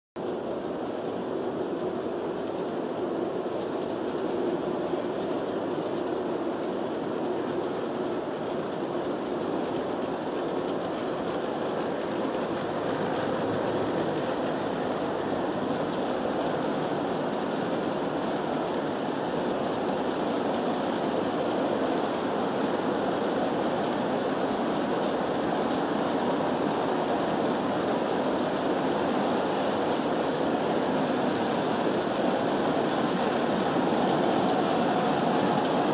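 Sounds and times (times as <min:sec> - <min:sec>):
model train wheels on metal track: 0:00.2 - 0:35.9.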